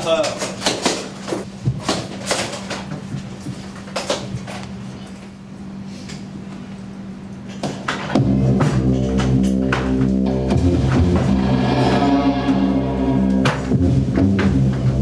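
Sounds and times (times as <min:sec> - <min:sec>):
steady low hum: 0:02.8 - 0:15.0
loud drum-driven music: 0:08.1 - 0:15.0.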